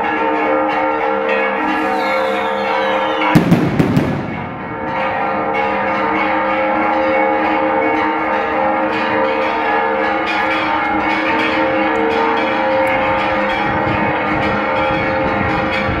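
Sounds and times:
church bells ringing: 0.0 - 16.0
thin falling whistle: 1.8 - 3.4
fireworks bangs: 2.2 - 5.2.

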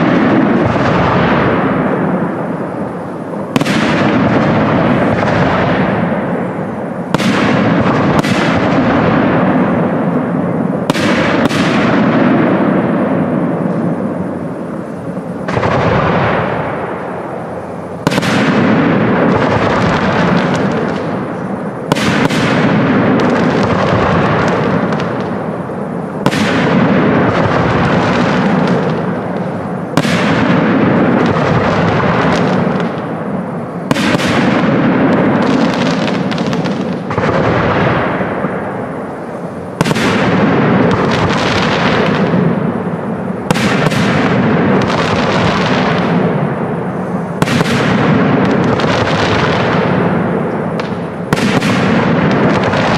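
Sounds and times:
firework bangs: 0.0 - 52.9
firework crackling: 0.0 - 52.9.

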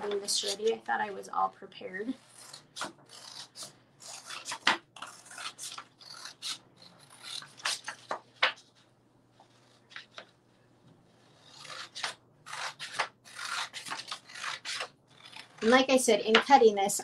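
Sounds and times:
scissors snipping paper: 2.4 - 8.6, 11.4 - 16.5
paper rustling: 7.3 - 15.8.

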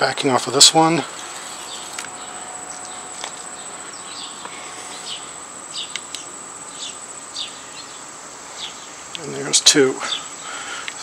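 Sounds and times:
high-pitched insect-like buzz: 0.8 - 9.5.

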